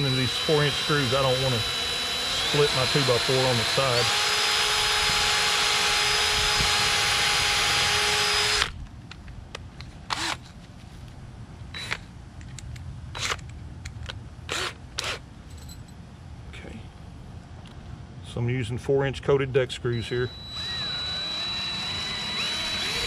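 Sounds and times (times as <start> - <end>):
cordless drill running: 0.0 - 8.7, 10.1 - 10.4, 14.5 - 15.2, 20.0 - 23.0.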